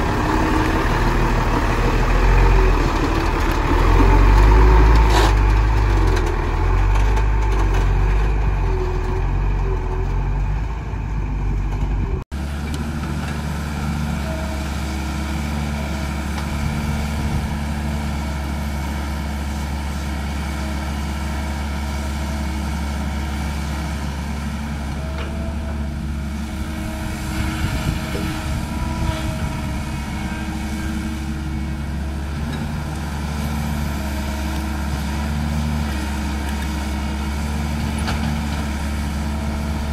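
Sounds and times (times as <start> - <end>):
excavator diesel engine running: 0.0 - 39.9
truck diesel engine rumbling: 0.0 - 39.9.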